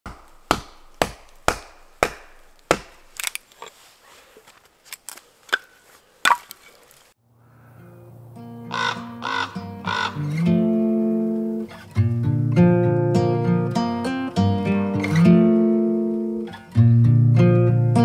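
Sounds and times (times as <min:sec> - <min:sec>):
axe chopping kindling: 0:00.1 - 0:03.7
split sticks knocking: 0:00.1 - 0:03.8.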